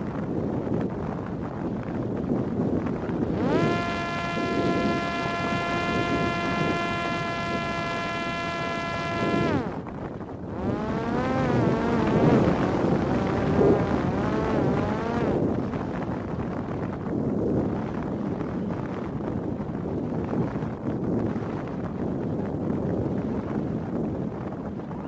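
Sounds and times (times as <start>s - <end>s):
wind rushing over microphone: 0.0s - 25.0s
drone motor and propeller whining: 2.0s - 18.6s.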